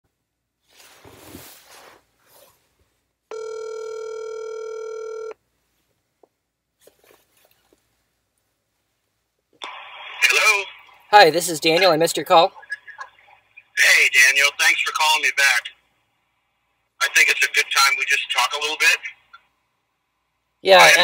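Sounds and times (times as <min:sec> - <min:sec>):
telephone ringback tone: 0:03.3 - 0:05.4.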